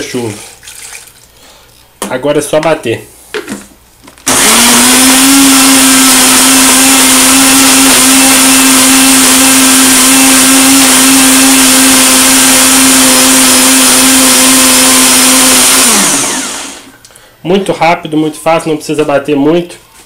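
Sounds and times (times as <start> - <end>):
electric blender running: 4.2 - 16.9.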